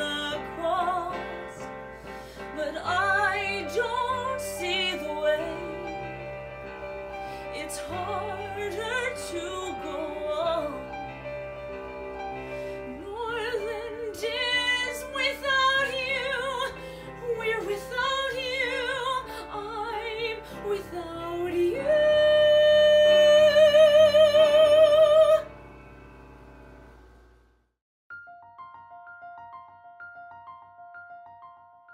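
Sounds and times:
woman singing with vibrato: 0:00.0 - 0:01.6, 0:02.4 - 0:06.4, 0:07.5 - 0:11.1, 0:12.8 - 0:25.5
piano accompaniment: 0:00.0 - 0:27.5, 0:28.1 - 0:31.9.

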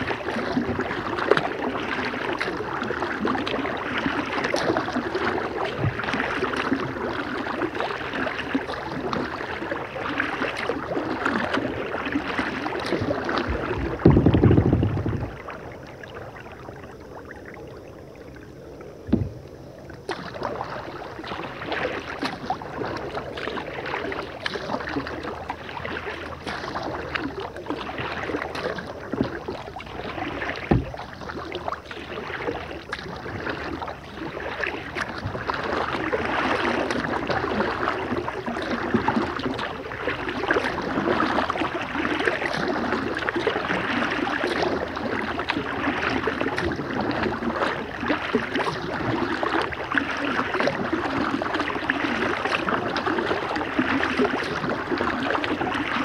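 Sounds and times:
water dripping off paddle: 0:00.0 - 0:16.2, 0:19.0 - 0:56.0
paddle splashing in water: 0:00.0 - 0:56.0
loud low thump: 0:14.0 - 0:15.3, 0:19.1 - 0:19.4, 0:30.7 - 0:31.0.

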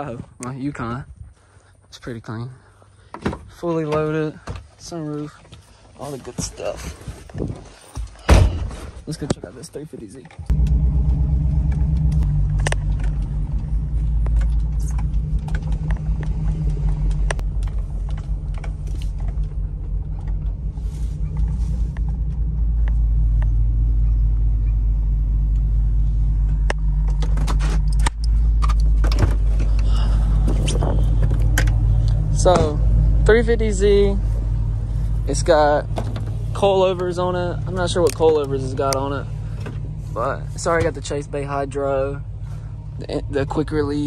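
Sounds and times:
car engine drone: 0:10.3 - 0:44.0
clicks and rattles in cab: 0:35.5 - 0:39.9.

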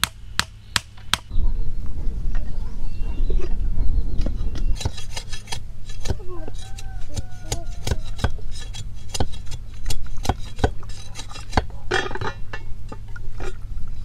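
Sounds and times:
scraping rustle of bamboo strip: 0:04.6 - 0:11.6.

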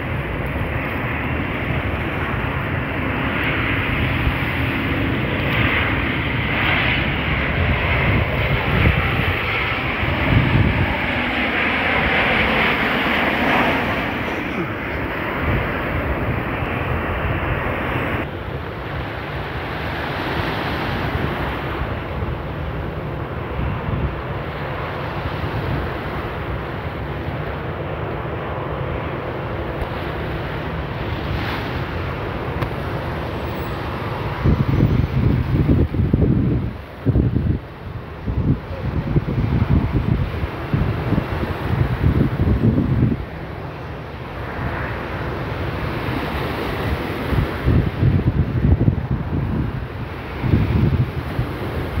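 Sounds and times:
wind buffeting microphone: 0:00.0 - 0:18.3, 0:29.6 - 0:52.0
jet airliner engine rush: 0:00.0 - 0:52.0.

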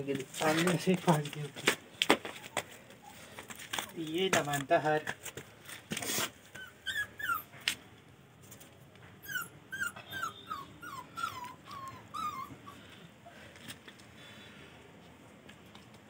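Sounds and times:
puppy whimpering: 0:06.5 - 0:07.6, 0:09.2 - 0:13.0.

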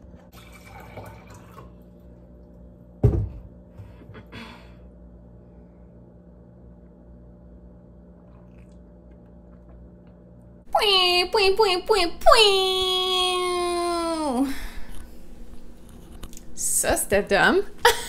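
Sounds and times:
faint steady hum: 0:00.0 - 0:18.0
water pouring into a glass: 0:00.3 - 0:01.8.

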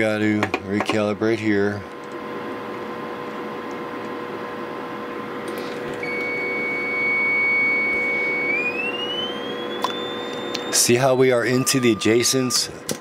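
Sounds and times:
hiss and low hum: 0:00.0 - 0:13.0
steady test tone: 0:06.0 - 0:12.8.

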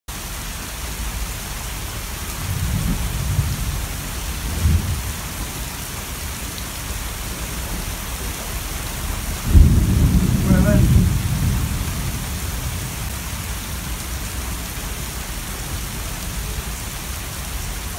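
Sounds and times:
heavy rain falling on a lake: 0:00.1 - 0:17.9
thunder rumbling: 0:02.3 - 0:06.5, 0:07.4 - 0:14.2.

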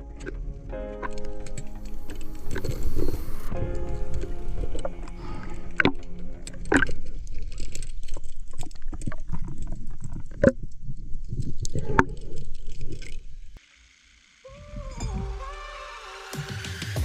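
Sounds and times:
dense underwater crackle: 0:00.0 - 0:13.6.

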